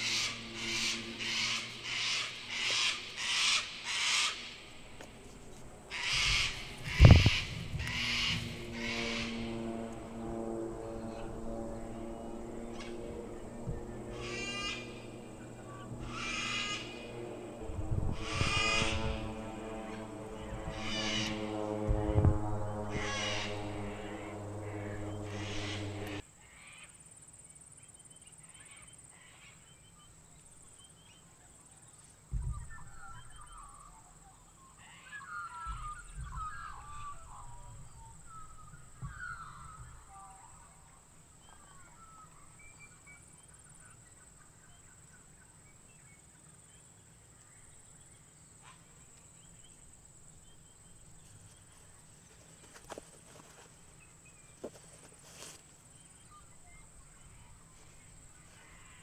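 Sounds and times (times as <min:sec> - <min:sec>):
droning music tone: 0:00.0 - 0:26.2
birds calling: 0:00.0 - 0:26.6, 0:32.3 - 0:59.0.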